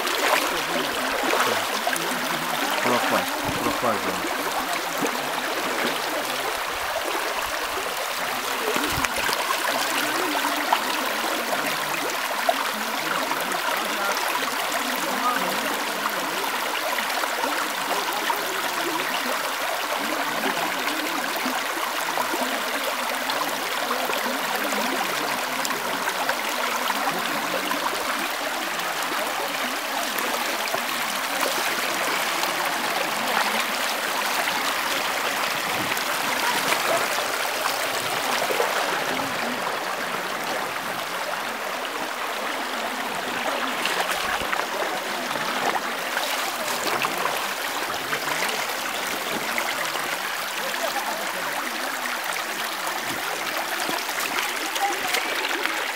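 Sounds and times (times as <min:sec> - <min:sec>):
brook babbling over stones: 0:00.0 - 0:55.9.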